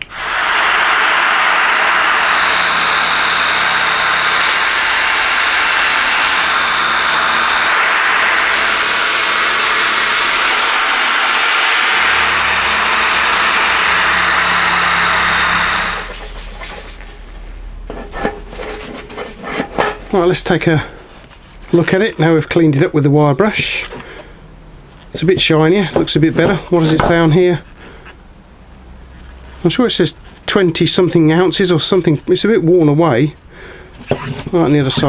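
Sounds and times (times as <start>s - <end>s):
rubbing and handling: 16.1s - 20.1s.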